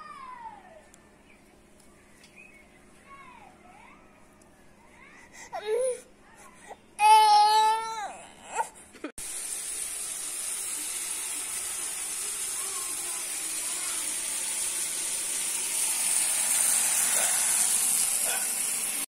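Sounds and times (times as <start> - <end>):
food sizzling in oil: 9.2 - 19.0.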